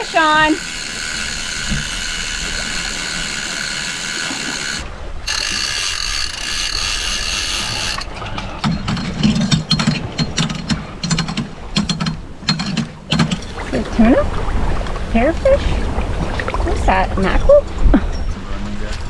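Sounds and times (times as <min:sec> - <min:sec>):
fishing reel drag buzzing: 0:00.0 - 0:08.1
reel clicking and ratcheting: 0:00.0 - 0:13.4.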